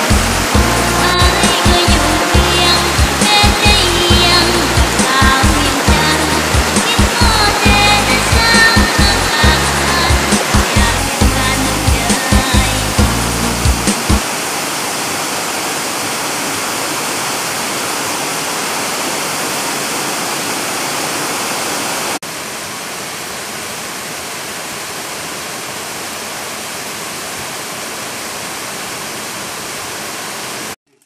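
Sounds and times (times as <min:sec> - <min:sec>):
waterfall rushing: 0:00.0 - 0:30.8.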